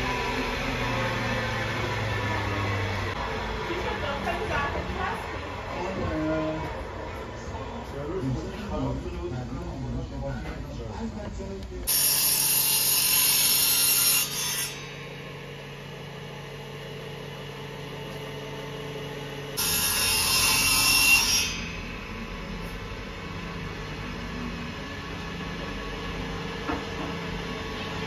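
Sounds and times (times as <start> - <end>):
table saw cutting wood: 0.0 - 4.6, 11.9 - 28.0.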